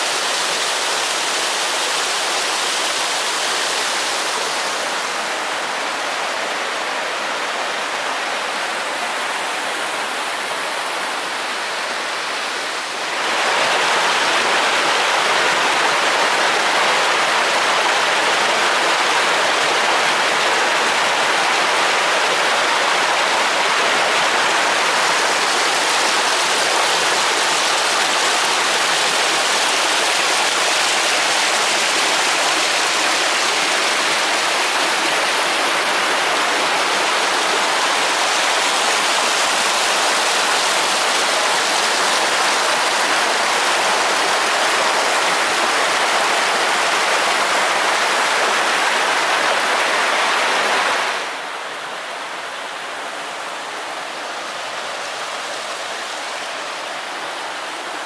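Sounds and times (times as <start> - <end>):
stream rushing over rocks: 0.0 - 58.0.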